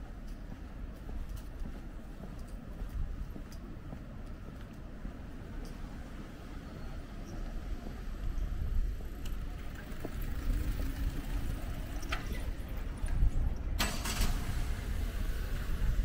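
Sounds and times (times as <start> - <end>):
car engine rumble: 7.5 - 16.0.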